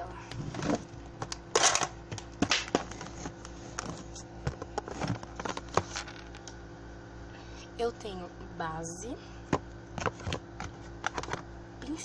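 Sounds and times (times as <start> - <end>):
plastic clicks and knocks: 9.5 - 11.4.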